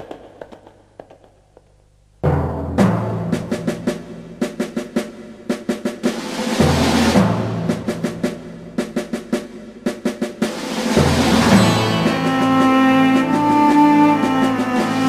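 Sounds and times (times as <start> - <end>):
quick repeated drum strikes: 2.2 - 15.0
dramatic soundtrack music: 10.4 - 15.0.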